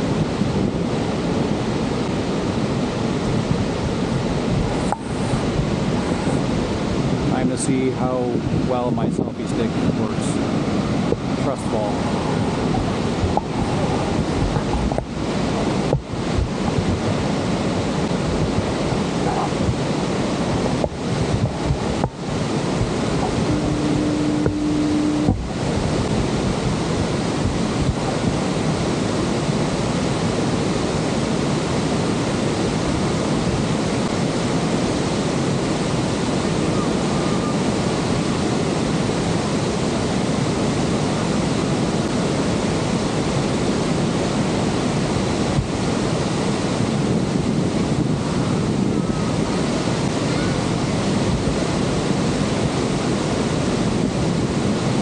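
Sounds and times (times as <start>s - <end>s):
wind buffeting the microphone: 0.0s - 55.0s.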